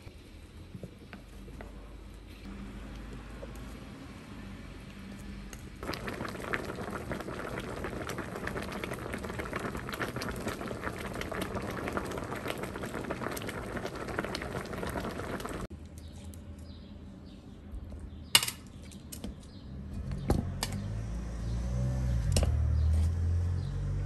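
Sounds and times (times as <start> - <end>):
soup boiling and bubbling: 2.5 - 15.7.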